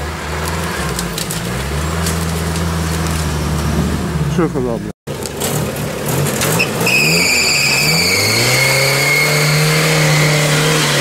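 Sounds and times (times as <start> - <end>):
wheels spinning in mud: 0.0 - 4.0
off-road engine revving: 0.0 - 11.0.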